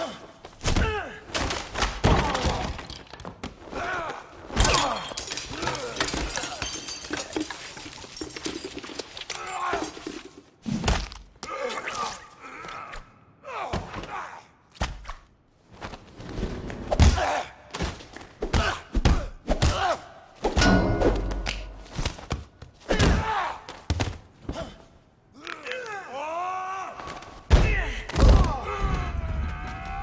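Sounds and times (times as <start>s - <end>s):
background music: 20.6s - 22.0s.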